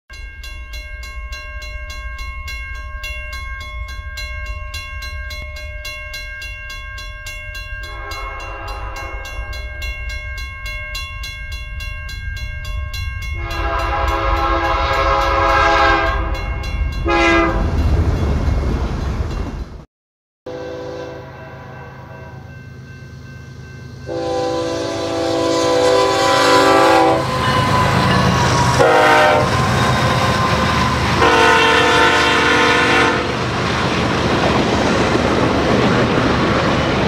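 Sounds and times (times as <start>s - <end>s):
pulsing high ringing: 0.1s - 17.3s, 20.6s - 32.9s
moving train rumble: 0.2s - 19.8s, 20.5s - 37.0s
locomotive air horn: 7.9s - 9.4s, 13.4s - 16.4s, 17.0s - 17.7s, 20.5s - 22.2s, 24.1s - 33.4s.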